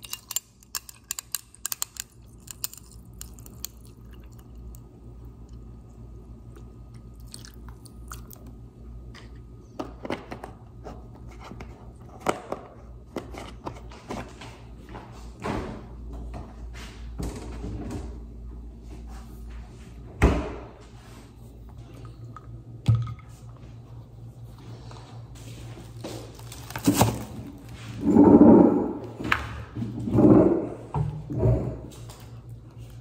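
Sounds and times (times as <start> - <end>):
steady low hum: 0.0 - 33.0
person chewing crunchy food: 1.5 - 8.6.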